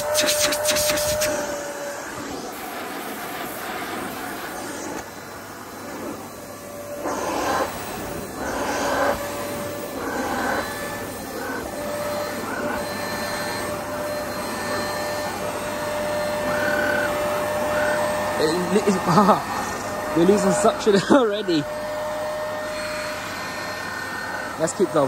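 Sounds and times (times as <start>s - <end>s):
hiss of sawdust sucked in: 0.0s - 9.6s
handheld vacuum motor whine: 0.0s - 25.0s.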